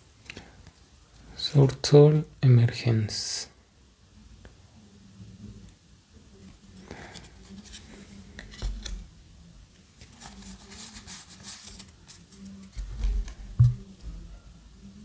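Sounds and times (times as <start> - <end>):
cards thumping on table: 12.8 - 13.8.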